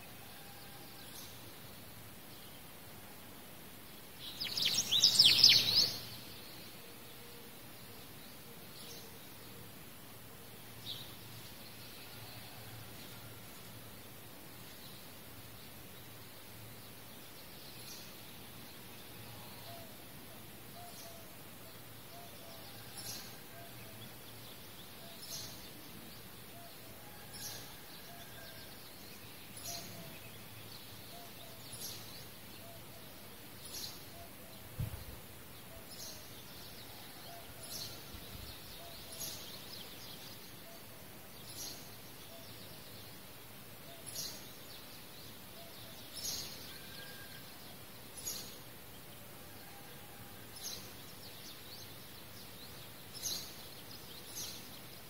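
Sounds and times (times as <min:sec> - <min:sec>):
dull thump: 0:34.8 - 0:35.1.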